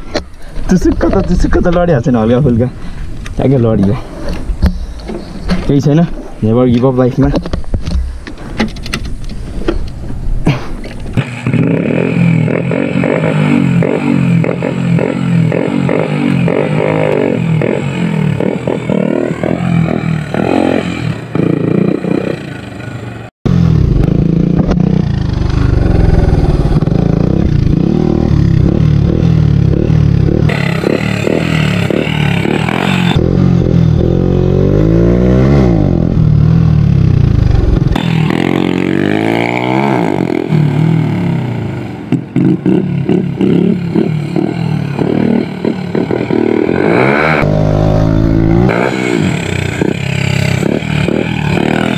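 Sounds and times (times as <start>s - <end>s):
motorcycle engine revving: 11.1s - 51.9s.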